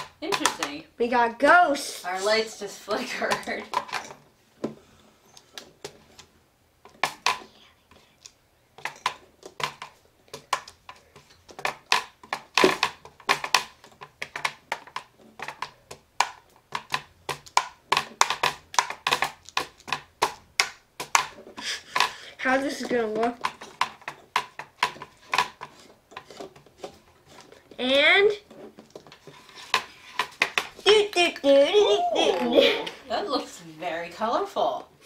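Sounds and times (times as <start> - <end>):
taps on hard plastic: 0.0 - 0.8.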